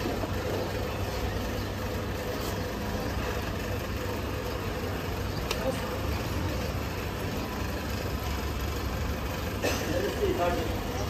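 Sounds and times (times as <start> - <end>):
low engine rumble: 0.0 - 11.0
street noise: 0.0 - 11.0.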